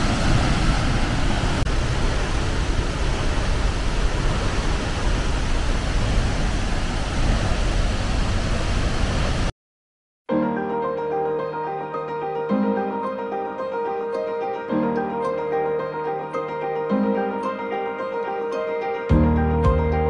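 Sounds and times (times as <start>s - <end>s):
waterfall rushing: 0.0s - 9.5s.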